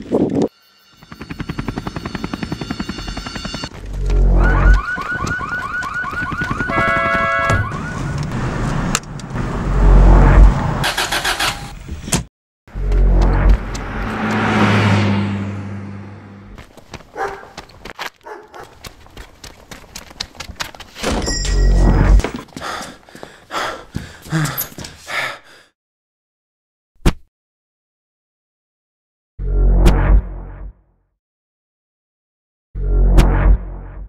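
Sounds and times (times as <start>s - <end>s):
pulsing rumbling tones: 12.7s - 16.6s
whooshing rush: 13.5s - 16.6s.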